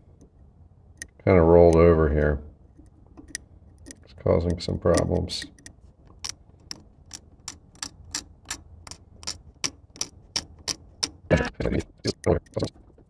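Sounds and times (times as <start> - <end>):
gears turning with clicks: 2.8 - 11.3, 12.0 - 13.0.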